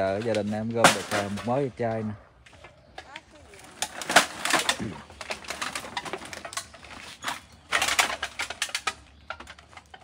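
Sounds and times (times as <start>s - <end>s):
plastic sack rustling and scraping: 3.5s - 10.0s.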